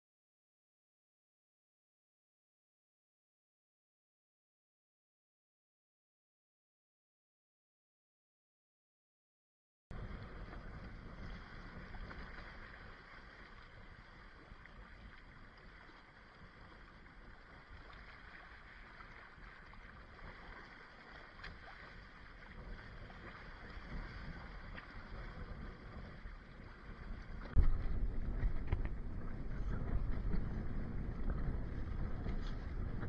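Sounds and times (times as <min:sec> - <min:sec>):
water splashing along hulls: 0:09.9 - 0:33.0
wind buffeting microphone: 0:09.9 - 0:33.0.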